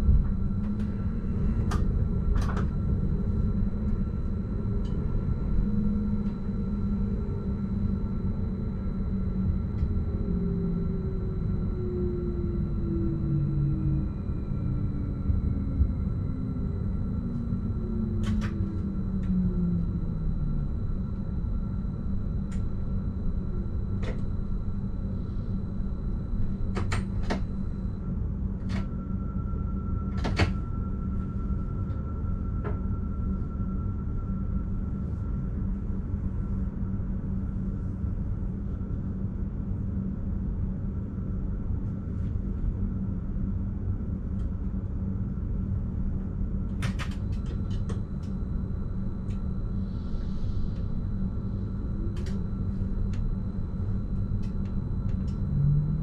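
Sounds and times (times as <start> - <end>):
electric train whine: 0.0 - 40.2, 42.2 - 56.0
low hum of standing train: 0.0 - 56.0.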